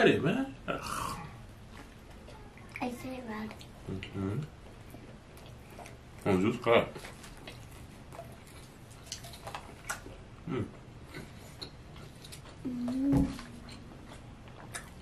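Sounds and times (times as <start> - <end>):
chewing and small clicks: 1.7 - 4.1, 4.8 - 6.3, 6.9 - 10.2, 13.4 - 15.0
person humming mmm: 12.6 - 13.9
short vocal sound: 12.6 - 13.9.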